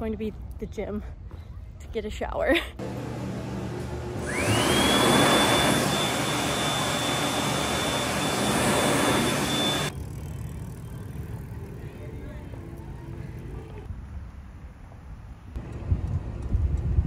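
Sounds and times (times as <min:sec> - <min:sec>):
hand dryer motor whine: 0:02.8 - 0:09.9.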